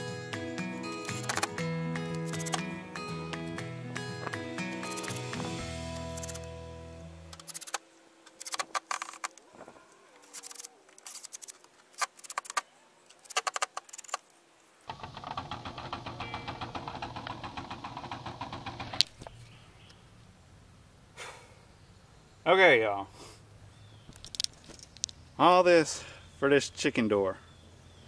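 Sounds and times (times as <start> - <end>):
rapid clicking of drill: 14.9 - 19.2.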